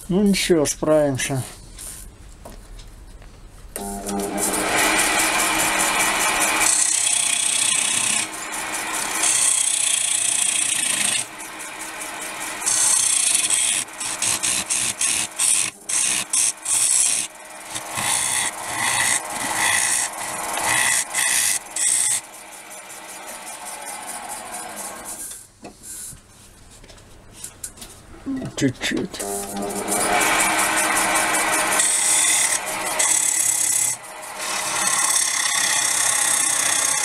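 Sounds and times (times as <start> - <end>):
lathe tool cutting wood: 3.8 - 25.4, 29.2 - 37.0.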